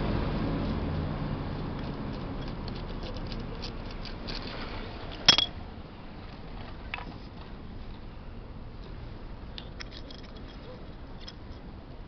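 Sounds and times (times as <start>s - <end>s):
metal jet clinking on landing: 5.2s - 5.6s, 9.8s - 11.7s.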